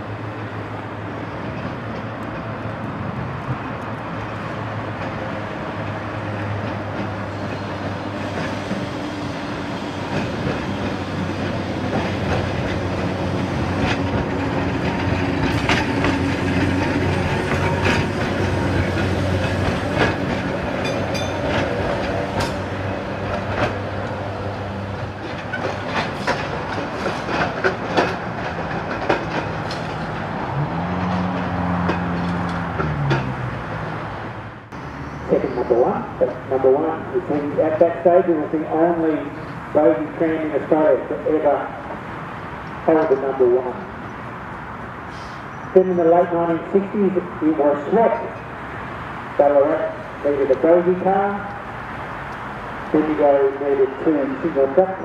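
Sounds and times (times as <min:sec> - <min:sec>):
electric tram running past: 0:00.0 - 0:55.0
wheels clicking over rail joints: 0:00.7 - 0:34.0.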